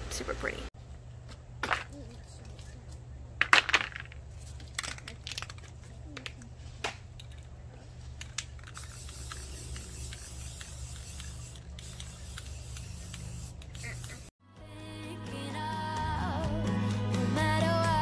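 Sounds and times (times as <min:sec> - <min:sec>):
spray paint can hissing: 0:08.3 - 0:14.3.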